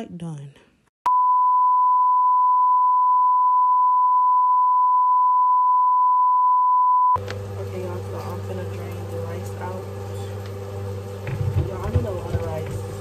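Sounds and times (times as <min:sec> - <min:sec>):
room noise with low hum: 0:07.2 - 0:13.0.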